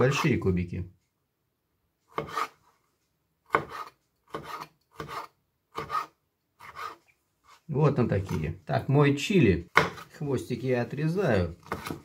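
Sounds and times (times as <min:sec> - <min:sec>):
knife cutting on plastic board: 0:02.1 - 0:02.6, 0:03.5 - 0:07.6, 0:09.7 - 0:10.2, 0:11.6 - 0:12.0.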